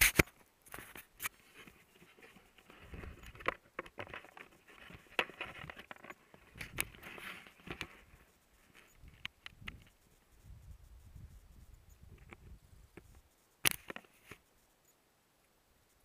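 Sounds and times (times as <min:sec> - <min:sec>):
bike clicking and rattling: 0:03.1 - 0:08.0.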